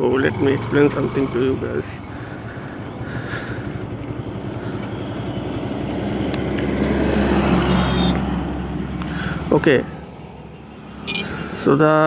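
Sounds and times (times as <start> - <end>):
motorcycle engine idling: 0.0 - 6.4.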